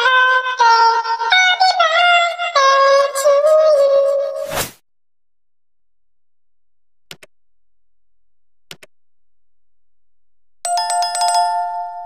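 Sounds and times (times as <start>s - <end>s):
mouse clicks: 7.1s - 7.4s, 8.7s - 9.0s
bell chime ringing: 10.7s - 12.0s.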